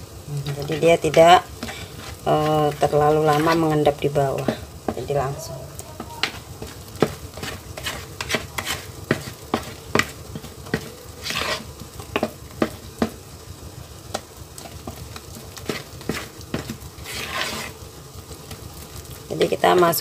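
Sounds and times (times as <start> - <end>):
wet batter squelching: 0.4 - 13.3, 14.0 - 18.0
spatula scraping swish: 1.6 - 3.7, 6.6 - 10.1, 10.7 - 11.7, 15.6 - 17.8.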